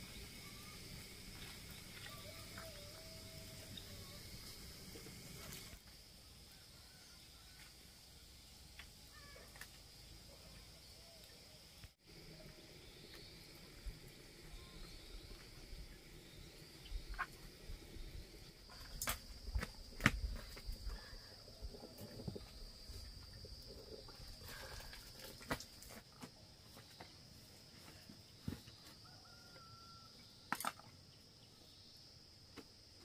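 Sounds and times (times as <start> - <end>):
high-pitched insect drone: 0.0 - 5.8.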